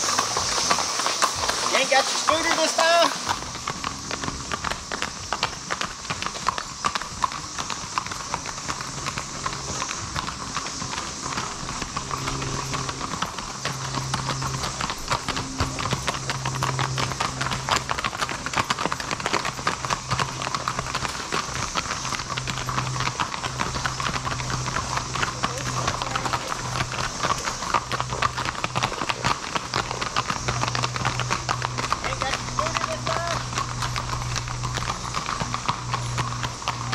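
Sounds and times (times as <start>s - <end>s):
cicada chorus drone: 0.0s - 36.9s
horse hooves clip-clopping on road: 0.0s - 36.9s
low hum: 8.8s - 36.9s.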